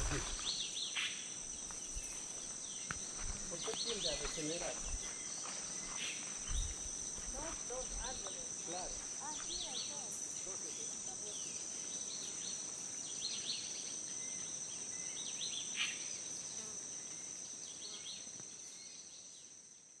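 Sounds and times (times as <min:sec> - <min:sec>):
birds chirping: 0:00.0 - 0:13.7
high-pitched insect drone: 0:00.0 - 0:19.4.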